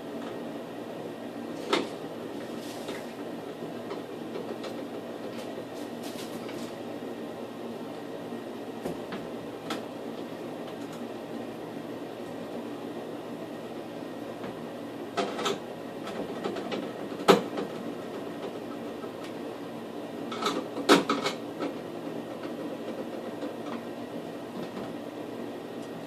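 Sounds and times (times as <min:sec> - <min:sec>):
steady background hum: 0:00.0 - 0:26.0.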